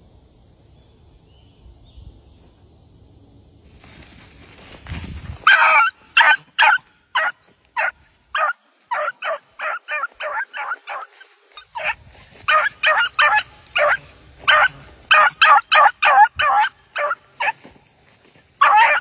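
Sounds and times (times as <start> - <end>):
faint rustling: 3.7 - 5.5
puppy barking high-pitched: 5.5 - 11.1, 11.8 - 17.6, 18.6 - 19.0.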